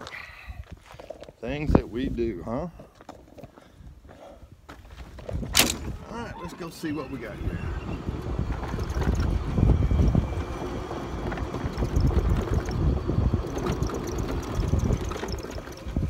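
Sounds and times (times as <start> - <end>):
wind buffeting microphone: 3.8 - 16.0
golf cart running and rolling: 5.2 - 16.0.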